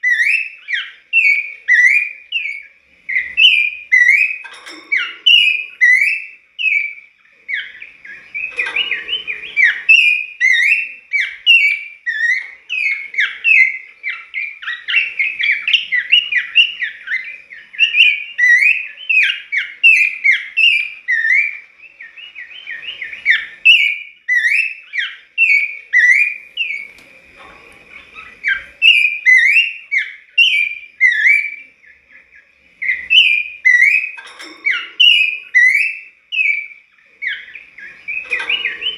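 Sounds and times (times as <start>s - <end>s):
bird singing whistled notes: 0.0s - 38.9s.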